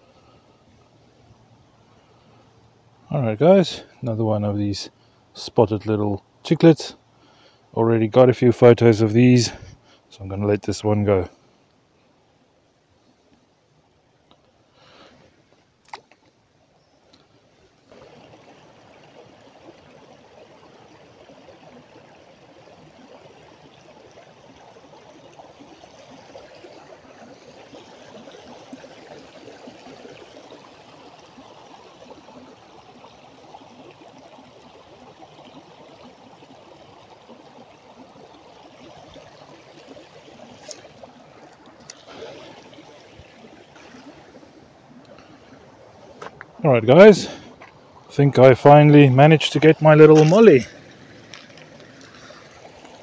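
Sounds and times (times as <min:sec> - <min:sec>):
water trickling over rocks: 0:13.3 - 0:53.0.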